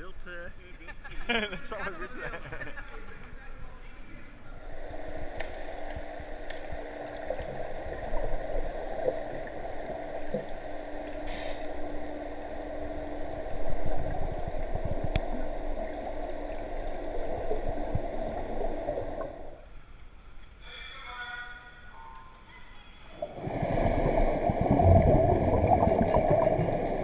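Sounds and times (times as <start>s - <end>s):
muffled underwater hum: 4.1s - 27.0s
faint clicks: 5.3s - 7.5s.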